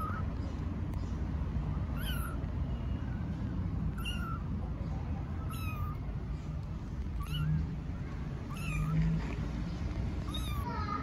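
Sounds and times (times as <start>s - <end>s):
kittens mewing: 0.0s - 0.4s, 1.8s - 2.6s, 3.7s - 9.3s, 10.1s - 11.0s.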